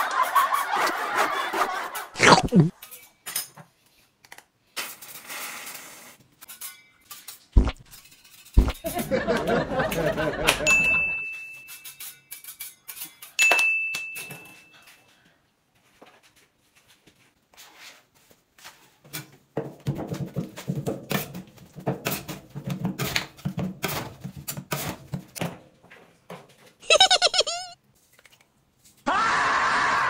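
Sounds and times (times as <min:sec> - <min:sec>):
bell-like ding: 0:10.7 - 0:11.8, 0:13.4 - 0:14.9.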